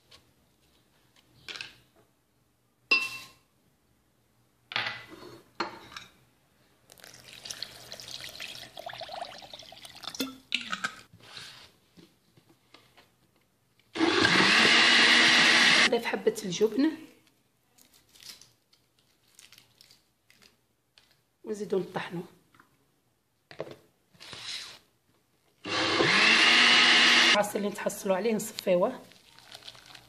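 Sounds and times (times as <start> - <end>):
water pouring into blender jar: 6.9 - 10.2, 29.1 - 30.0
blender grinding: 14.0 - 15.9, 25.6 - 27.4.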